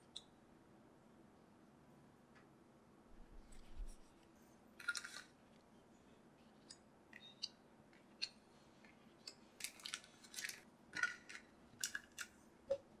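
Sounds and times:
plastic crinkling: 9.6 - 12.3.

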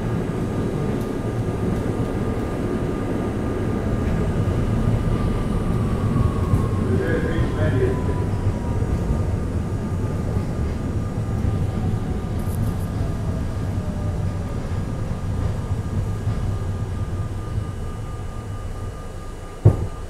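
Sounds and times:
subway wheels rumbling on rails: 0.0 - 20.0
faint falling whine: 11.0 - 20.0.

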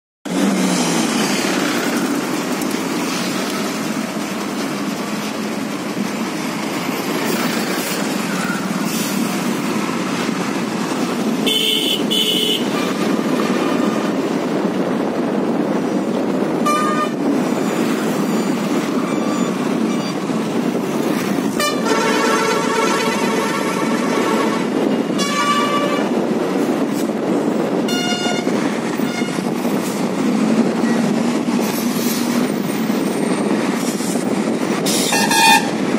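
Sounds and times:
wind and road noise: 0.2 - 35.9
vehicle horns honking: 11.4 - 13.0, 16.6 - 17.2, 21.5 - 26.2, 27.8 - 29.5, 35.0 - 35.8.

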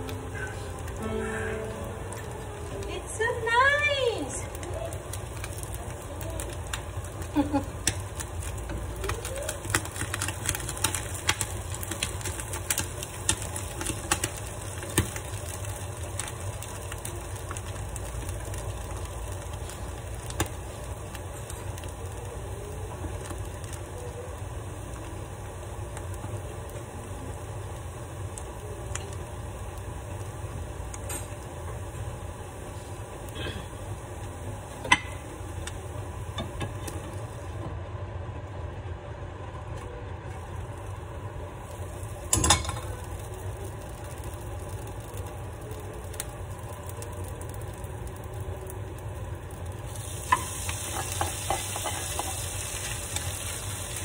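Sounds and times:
steady low rumble: 0.0 - 9.0.

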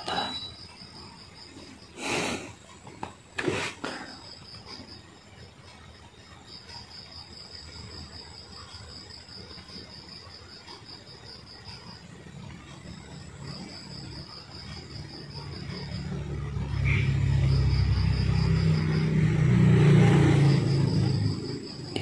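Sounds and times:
crickets chirping: 0.0 - 22.0.

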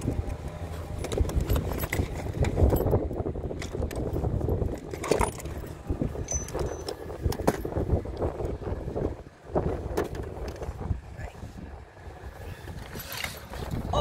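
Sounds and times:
handling knocks and clicks: 0.0 - 8.3.

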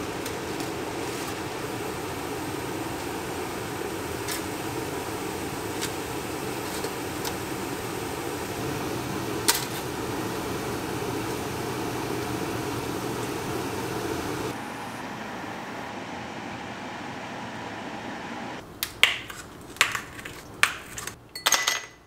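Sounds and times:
fan whirring: 0.0 - 21.4.

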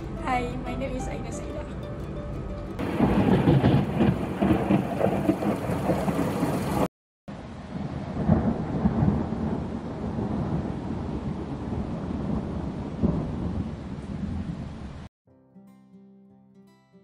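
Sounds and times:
rain: 2.8 - 15.1
rolling thunder: 2.8 - 15.1.

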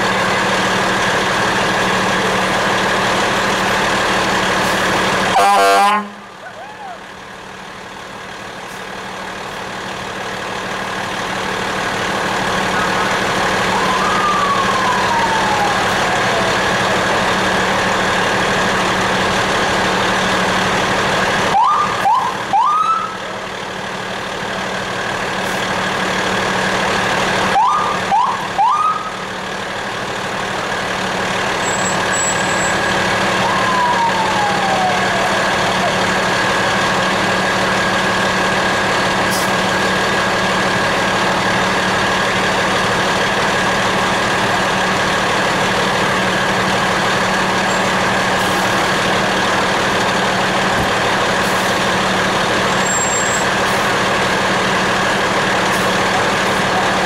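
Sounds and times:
fire truck engine and cab noise: 0.0 - 57.0
rising siren whoops: 6.4 - 7.1, 12.7 - 17.2, 21.5 - 23.2, 27.5 - 29.1, 32.7 - 36.0
siren tone sliding down: 13.7 - 17.0, 33.4 - 35.9.

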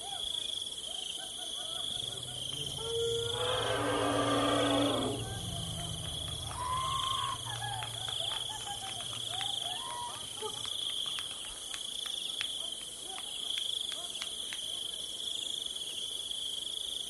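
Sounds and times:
insects chorus: 0.0 - 17.0
low steady hum: 1.8 - 10.7.

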